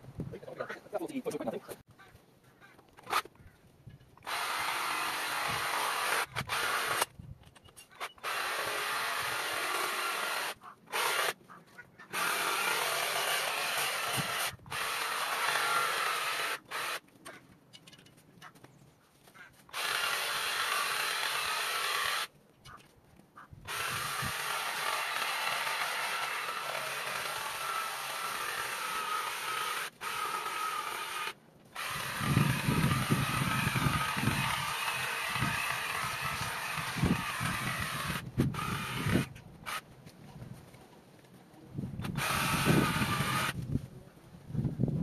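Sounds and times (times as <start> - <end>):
cordless power tool cutting ivy: 4.2 - 7.1, 8.2 - 11.4, 12.1 - 17.0, 19.7 - 22.3, 23.7 - 39.8, 42.0 - 43.8.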